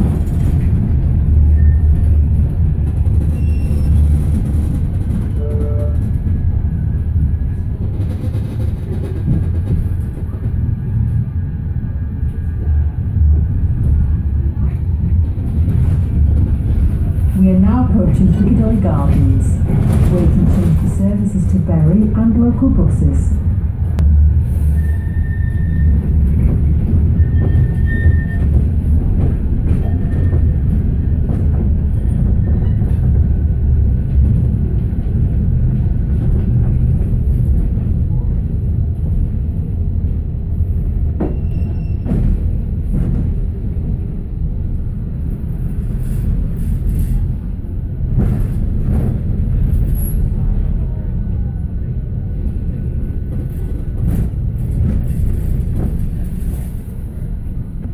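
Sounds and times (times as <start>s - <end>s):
tram rumbling on rails: 0.0s - 57.9s
faint high squeals: 3.3s - 4.1s, 24.7s - 26.0s, 41.3s - 42.1s.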